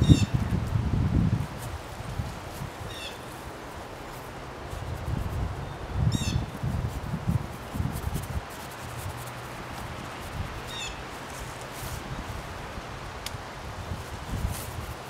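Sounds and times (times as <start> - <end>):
songbird calling: 2.9 - 3.3, 5.7 - 6.4, 10.7 - 11.0.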